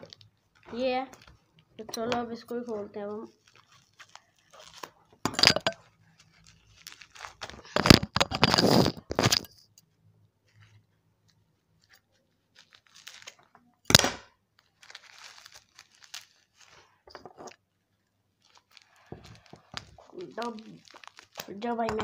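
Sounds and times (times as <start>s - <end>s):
plastic packaging crinkling: 0.0s - 9.5s, 11.8s - 13.8s, 14.5s - 22.0s
sharp plastic crack: 7.1s - 9.3s, 13.2s - 16.2s, 18.7s - 22.0s.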